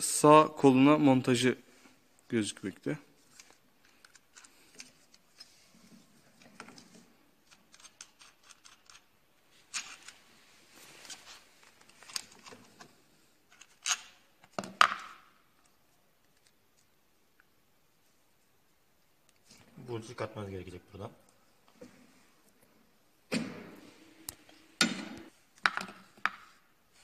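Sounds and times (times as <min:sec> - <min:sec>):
small clicks and metal clinks: 0:07.5 - 0:09.1.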